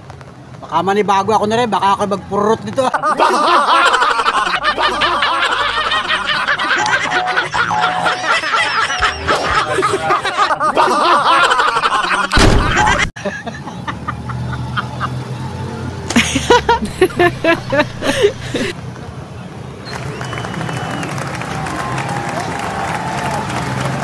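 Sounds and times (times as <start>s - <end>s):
shrieking cackling laughter: 2.9s - 15.2s, 16.1s - 18.8s
loud crash-like burst: 12.4s - 13.1s.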